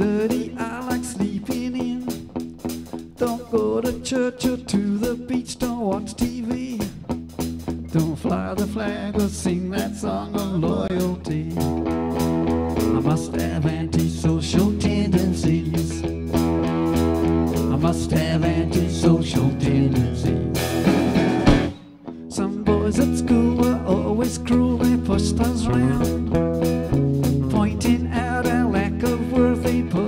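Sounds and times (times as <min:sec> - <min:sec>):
man singing lead vocal: 0:00.0 - 0:02.3, 0:03.2 - 0:07.2, 0:07.8 - 0:11.8, 0:12.8 - 0:16.2, 0:17.5 - 0:20.5, 0:22.2 - 0:26.4, 0:27.4 - 0:30.0
live rock band playing: 0:00.0 - 0:30.0.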